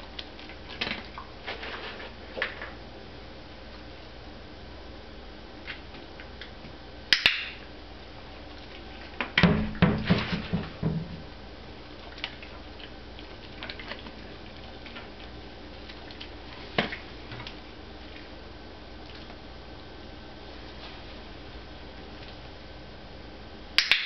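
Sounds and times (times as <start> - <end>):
wooden knocks and rattles: 9.4 - 11.3.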